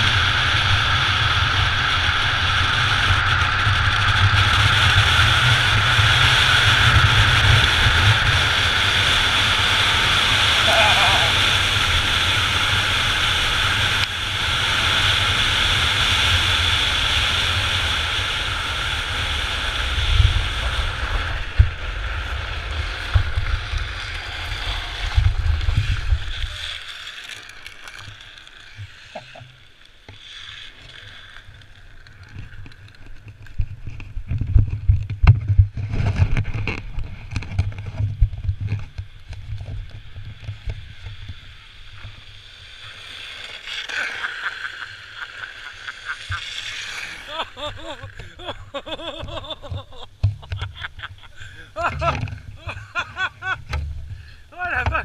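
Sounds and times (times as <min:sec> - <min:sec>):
wheels crunching over gravel: 0:00.0 - 0:55.0
wheels rolling on road: 0:00.0 - 0:55.0.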